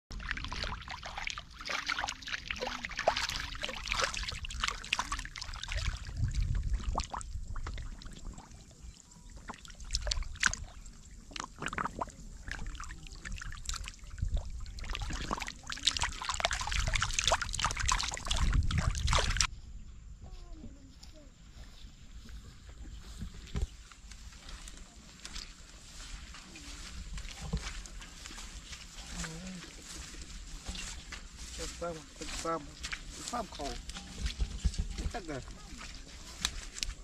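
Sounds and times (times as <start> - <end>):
fish splashing in water: 0.1 - 19.5.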